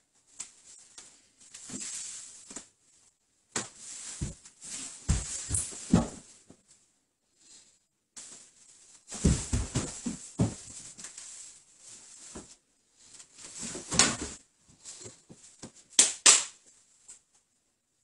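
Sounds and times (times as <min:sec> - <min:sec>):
bodies scuffing on wooden floor: 0:04.0 - 0:06.2, 0:09.1 - 0:10.9.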